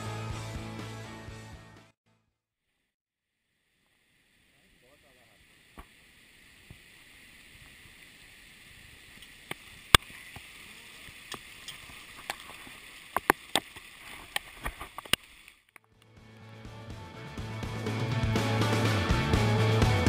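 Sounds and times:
rain hissing on river: 0:03.6 - 0:15.7.

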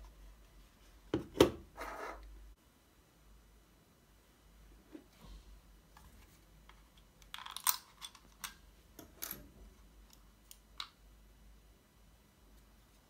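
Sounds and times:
plastic mouse clicks and rattles: 0:06.7 - 0:08.6.

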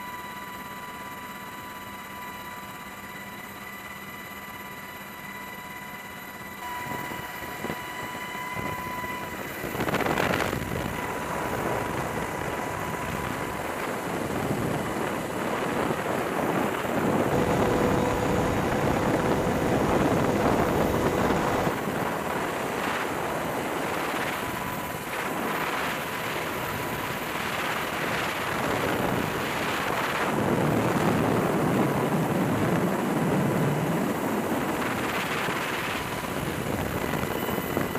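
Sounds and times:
helicopter rotor and engine: 0:00.0 - 0:37.9
wind rushing past microphone: 0:09.4 - 0:23.5.

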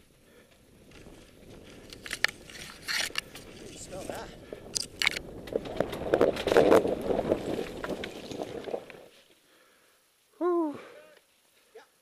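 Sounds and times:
leaves and branches scraping: 0:00.9 - 0:09.4.

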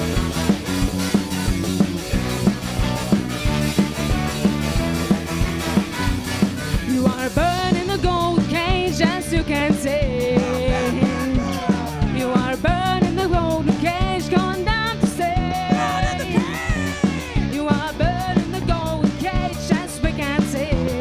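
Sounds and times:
band with horn section: 0:00.0 - 0:07.3, 0:10.2 - 0:12.6, 0:15.5 - 0:17.9
drums steady beat: 0:00.0 - 0:21.0.

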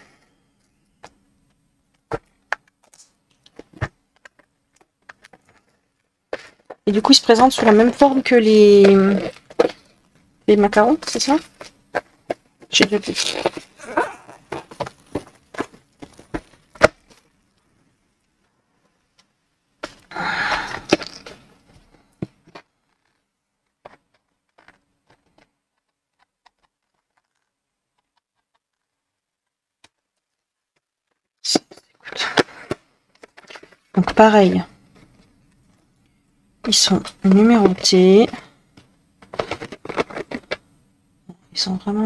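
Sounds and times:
packaging rustling: 0:11.4 - 0:17.4
cardboard packaging clicks and knocks: 0:14.5 - 0:17.3.

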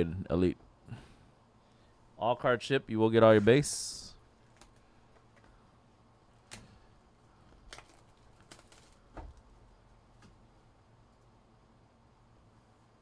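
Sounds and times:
plastic wrap crinkling and tearing: 0:07.5 - 0:09.2.

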